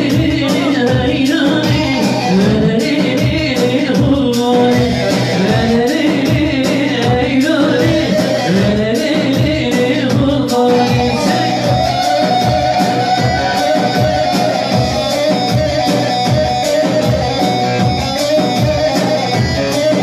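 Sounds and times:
dance music over loudspeaker: 0.0 - 20.0
man singing: 0.0 - 20.0.

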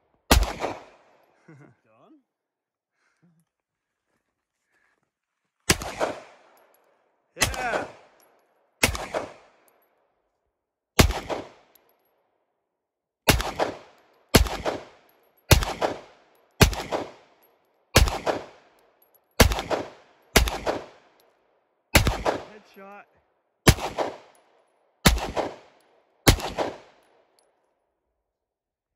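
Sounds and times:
gunshots: 0.3 - 1.0, 5.7 - 6.4, 7.4 - 8.1, 8.8 - 9.5, 11.0 - 11.7, 13.3 - 17.3, 18.0 - 18.7, 19.4 - 21.0, 22.0 - 23.0, 23.7 - 24.4, 25.0 - 27.0
gunshot echo off rock walls: 0.3 - 1.1, 7.4 - 8.1, 8.8 - 9.6, 11.0 - 11.7, 13.3 - 17.3, 18.0 - 18.7, 19.4 - 21.1, 22.0 - 22.8, 23.7 - 24.4, 25.0 - 27.0.

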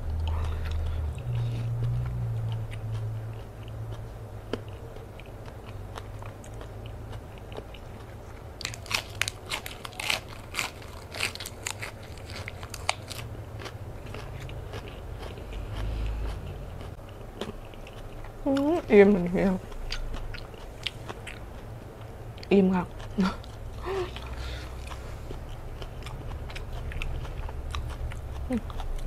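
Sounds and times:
lettuce crunching while chewed: 0.0 - 19.0.

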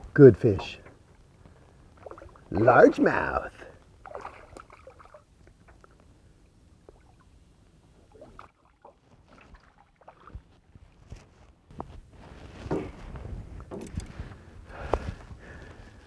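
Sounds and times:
fish splashing at water surface: 4.0 - 5.3.

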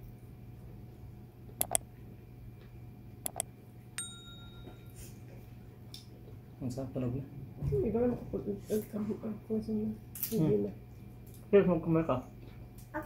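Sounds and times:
low room hum: 0.0 - 13.0
quick double clicks: 1.6 - 1.8
short bell ding: 4.0 - 5.0.

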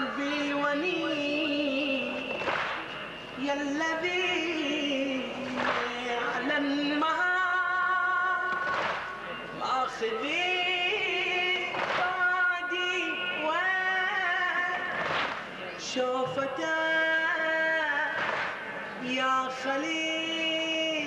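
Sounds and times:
man chanting into microphone: 0.0 - 2.4, 3.4 - 8.6.

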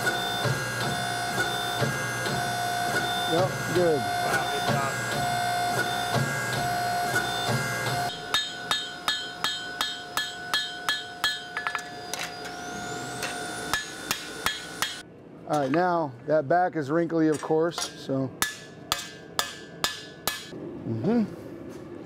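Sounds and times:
hand hammer on anvil: 8.1 - 12.4, 13.2 - 15.0, 17.3 - 20.5.

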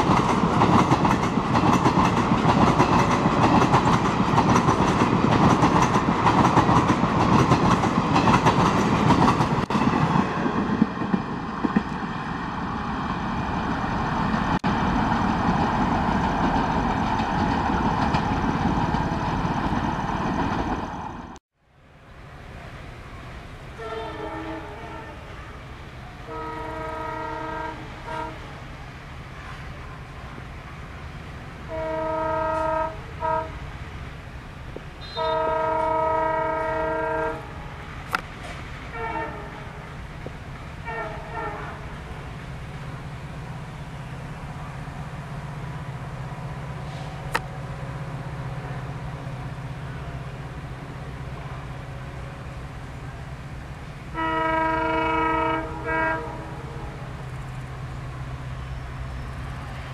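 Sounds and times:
diesel locomotive engine rumble: 0.0 - 59.9
diesel locomotive horn: 23.7 - 28.6, 31.6 - 33.6, 35.0 - 37.8, 38.9 - 39.9, 40.8 - 42.2, 54.1 - 57.2.

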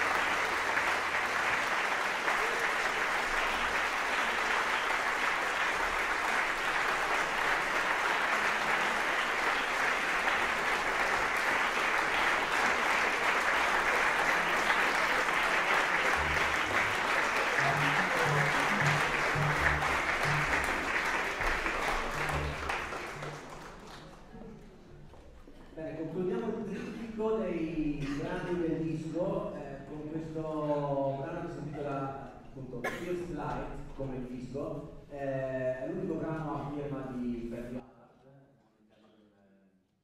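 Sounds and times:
audience applauding: 0.0 - 24.8
short low instrument notes: 16.0 - 23.4.

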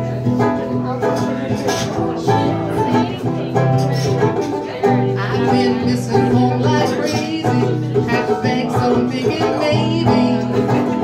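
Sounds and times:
acoustic guitar strumming: 0.0 - 11.0
banjo: 0.0 - 11.0
person singing: 3.8 - 11.0.

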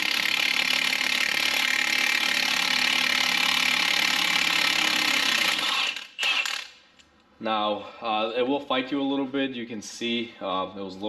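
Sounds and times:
impact wrench hammering: 0.0 - 6.8.

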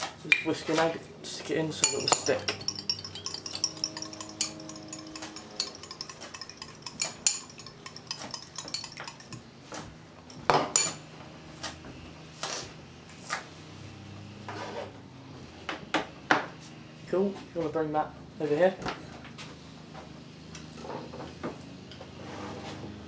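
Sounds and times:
fork clinking against bowl: 1.8 - 9.4.

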